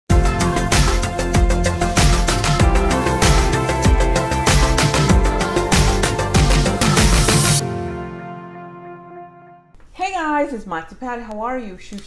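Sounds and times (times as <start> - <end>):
intro music with drum beat: 0.1 - 9.0.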